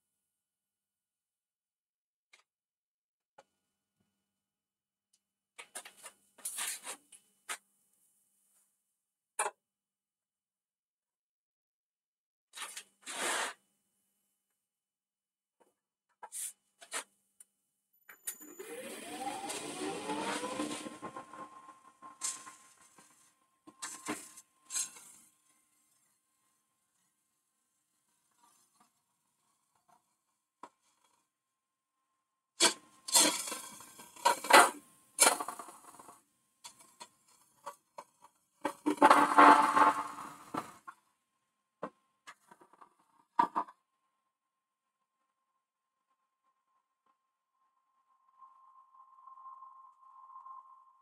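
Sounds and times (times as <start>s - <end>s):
wood lathe motor whine: 18.3s - 22.8s
hollowing tool scraping wood: 18.5s - 23.2s.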